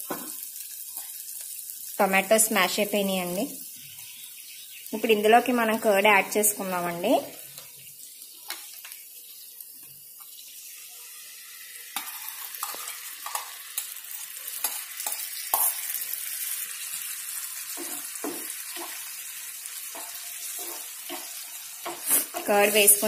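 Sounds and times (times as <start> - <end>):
masala sizzling in frying pan: 0.0 - 23.0
spatula scraping and tapping: 12.0 - 13.9, 14.6 - 15.8, 17.7 - 19.0, 19.8 - 23.0.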